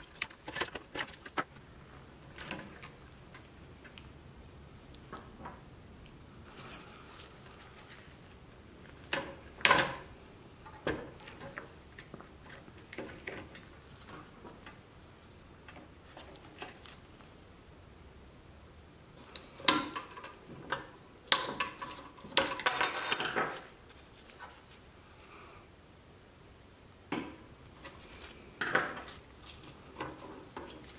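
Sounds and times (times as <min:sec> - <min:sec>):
small metal parts clinking: 0:21.8 - 0:23.7.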